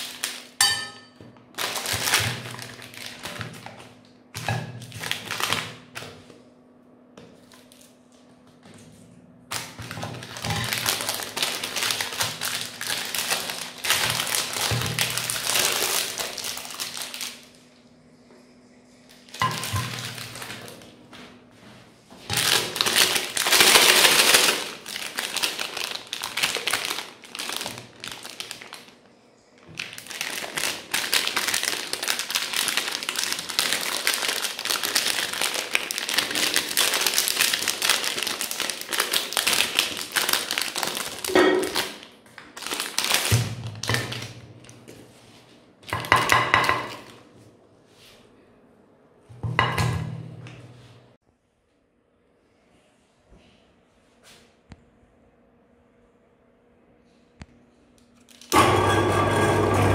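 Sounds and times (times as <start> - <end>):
foil wrappers crinkling: 0.0 - 0.6, 1.4 - 6.3, 7.4 - 8.0, 9.5 - 17.7, 19.1 - 21.0, 22.2 - 45.0, 45.8 - 47.2, 58.2 - 58.6
frozen bars knocking on glass plate: 46.0 - 47.1.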